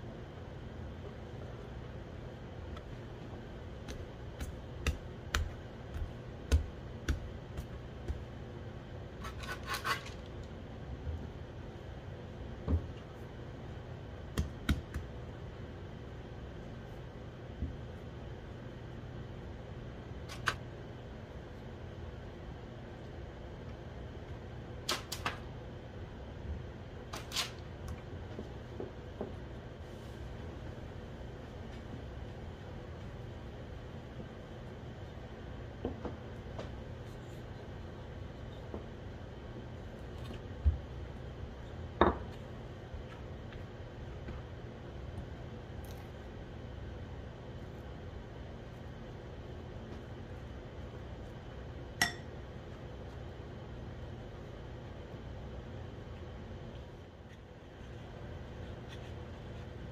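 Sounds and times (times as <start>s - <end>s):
low steady hum: 0.0s - 59.9s
hand tapping bread dough: 3.7s - 8.4s, 14.3s - 15.2s.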